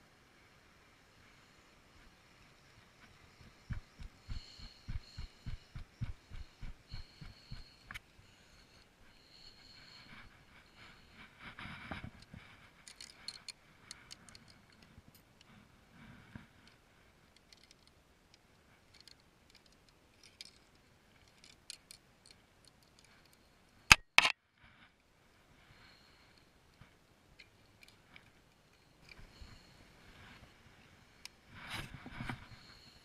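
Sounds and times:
sharp loud clicks: 23.9 - 24.4.

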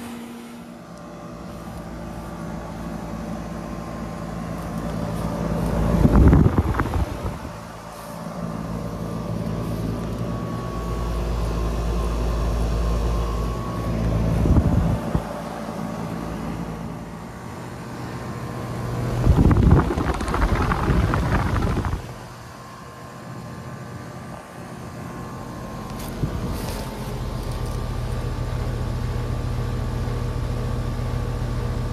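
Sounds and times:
fan airflow rushing: 0.0 - 30.1
heat pump unit humming: 0.0 - 31.9
wind buffeting microphone: 6.0 - 7.6, 19.1 - 22.3.

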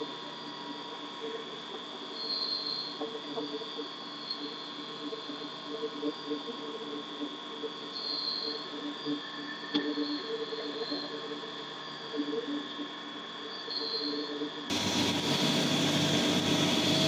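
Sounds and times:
milling machine high whine: 14.7 - 17.0.

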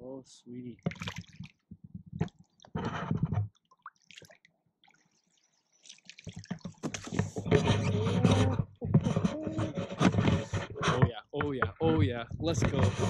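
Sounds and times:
fish splashing in water: 0.8 - 1.6, 3.6 - 7.4.

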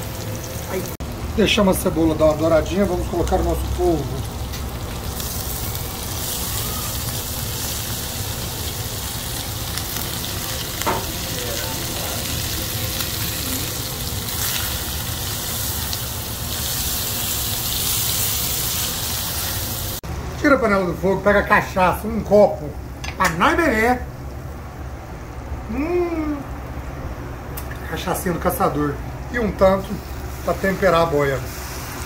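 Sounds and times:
octopus sizzling in a pan: 0.0 - 20.0, 30.0 - 32.0.

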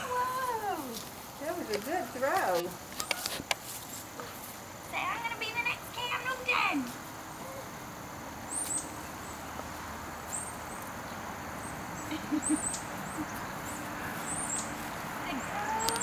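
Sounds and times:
steady background hiss: 0.0 - 16.0
small bird chirping: 8.4 - 16.0.

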